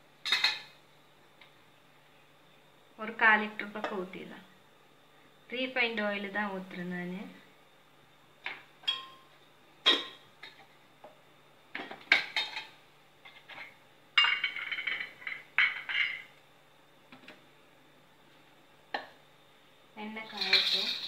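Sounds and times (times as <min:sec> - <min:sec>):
metal utensils and dishes clinking: 0:20.2 - 0:21.0.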